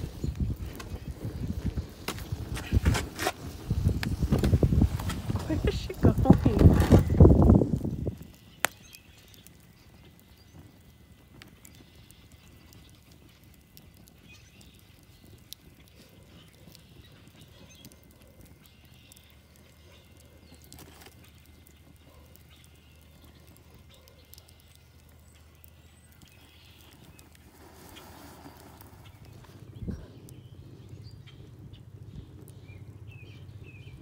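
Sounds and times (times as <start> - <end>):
wood fire crackling and popping: 0.0 - 34.0
low steady rumble: 28.7 - 34.0.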